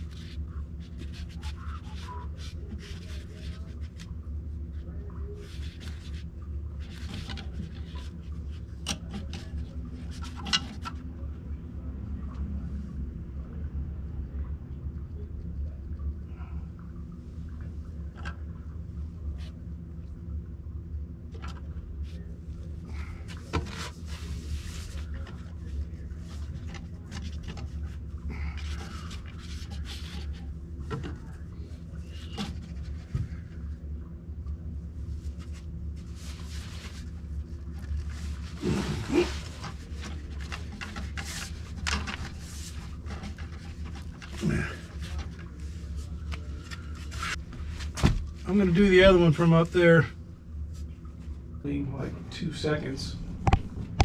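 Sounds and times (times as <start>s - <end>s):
steady low hum: 0.0s - 54.0s
rustling: 35.1s - 48.6s.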